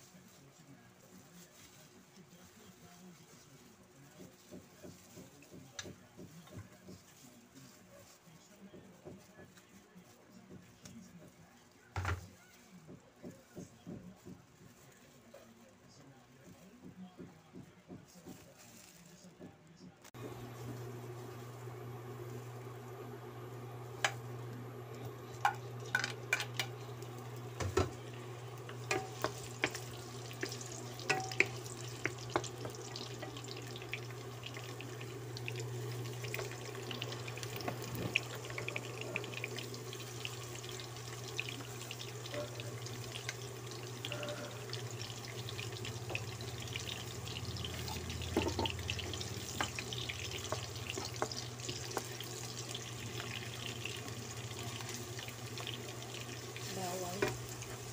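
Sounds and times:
onions sizzling in oil: 20.2s - 57.9s
wooden spatula scraping pan: 27.6s - 34.2s.

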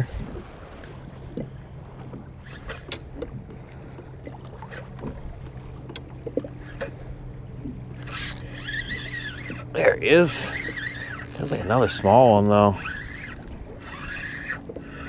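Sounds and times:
steady low hum: 0.0s - 15.0s
water lapping against kayak hull: 0.0s - 15.0s
fishing reel cranking: 2.4s - 3.1s, 6.6s - 7.0s, 7.9s - 15.0s.

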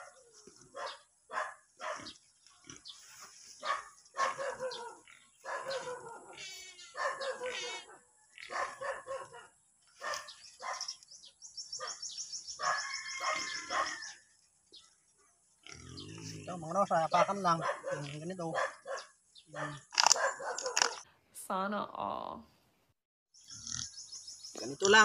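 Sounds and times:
dog barking: 0.0s - 2.2s, 3.6s - 11.0s, 12.6s - 14.1s, 17.1s - 21.0s.

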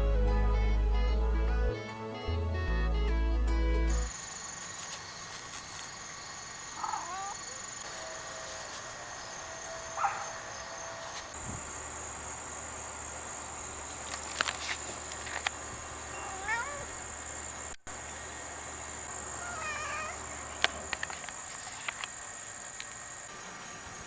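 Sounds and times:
background music: 0.0s - 4.1s
crickets trilling: 3.9s - 24.0s
brief insect chirps: 4.0s - 11.8s.

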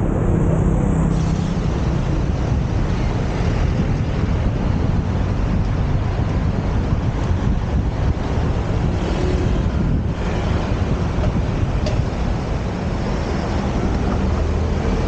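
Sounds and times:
low engine hum: 0.0s - 15.0s
low rumbling noise: 0.0s - 15.0s
wind buffeting microphone: 0.0s - 15.0s.

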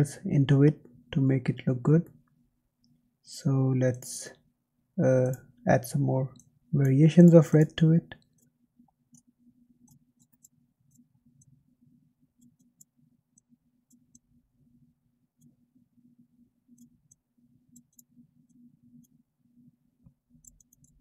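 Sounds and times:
low steady hum: 0.0s - 21.0s
computer mouse clicks: 6.4s - 11.6s, 12.4s - 14.3s, 16.7s - 19.2s, 20.4s - 21.0s.

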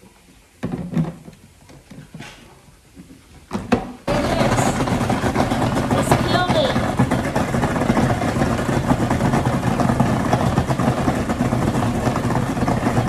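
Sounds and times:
food processor motor running: 4.1s - 13.0s
potato chunks tumbling in a bowl: 4.1s - 13.0s.

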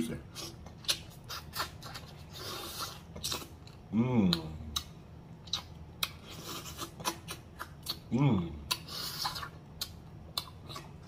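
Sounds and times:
person chewing meat: 0.2s - 11.0s
wet lip smacks and sucking: 0.4s - 3.6s, 8.7s - 11.0s
person humming mmm: 3.9s - 4.9s.

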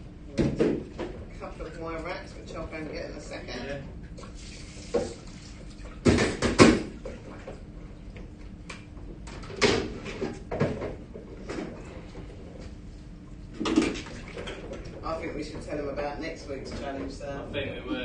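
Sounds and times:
steady low hum: 0.0s - 18.0s
water running: 1.5s - 6.2s.

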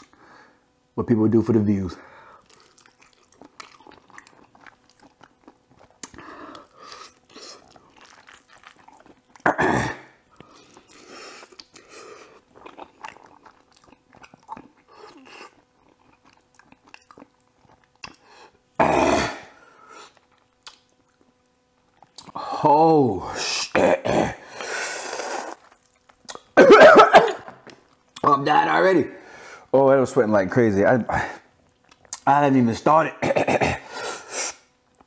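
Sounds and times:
slurping and chewing noodles: 2.3s - 22.5s, 24.4s - 26.6s.

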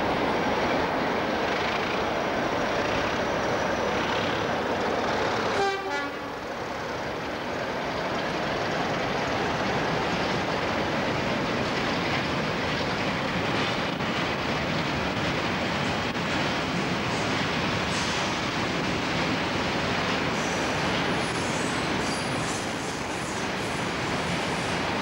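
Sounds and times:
train passing on rails: 0.0s - 25.0s
train horn toot: 5.5s - 6.4s.

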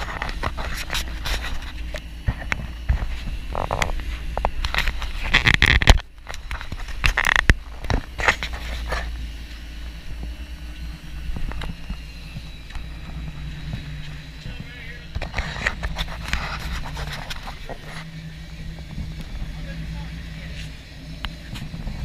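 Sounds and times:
noisy rushes and knocks: 0.0s - 9.1s
boat engine rumble: 0.0s - 22.0s
wake churning: 6.8s - 22.0s.

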